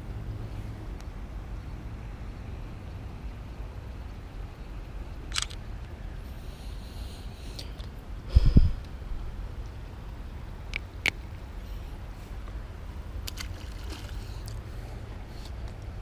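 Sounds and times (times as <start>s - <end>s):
camera shutter click: 5.3s - 5.6s
low rumble: 8.2s - 9.6s.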